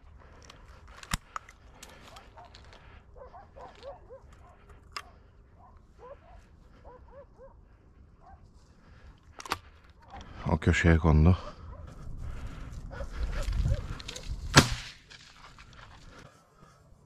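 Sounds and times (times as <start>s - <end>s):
dogs yelping: 2.0s - 8.4s.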